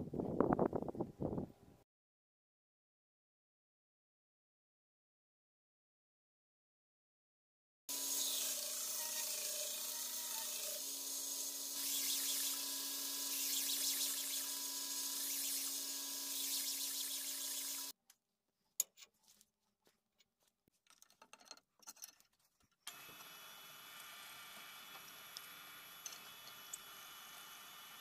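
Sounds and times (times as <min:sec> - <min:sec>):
belt grinder grinding steel: 0:07.9 - 0:18.0.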